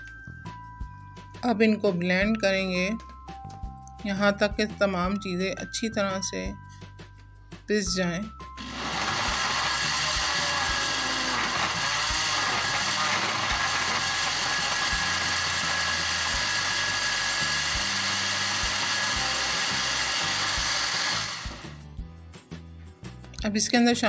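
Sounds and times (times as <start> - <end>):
blender running: 8.6 - 21.9.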